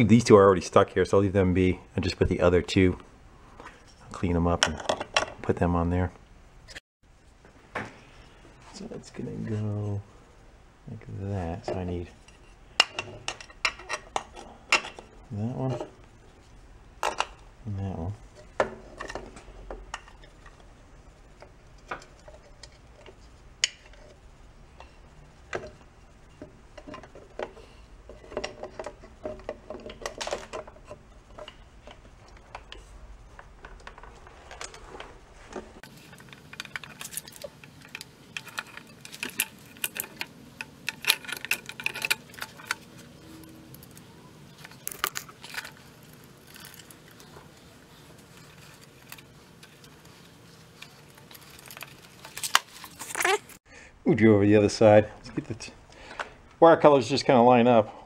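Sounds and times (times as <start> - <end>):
metal fasteners clinking: 11.6 - 16.0, 35.8 - 53.6.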